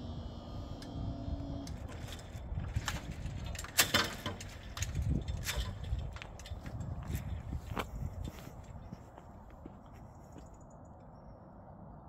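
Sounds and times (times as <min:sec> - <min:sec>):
wind rumble on microphone: 0:00.0 - 0:12.0
knocks and rustles: 0:01.8 - 0:09.1.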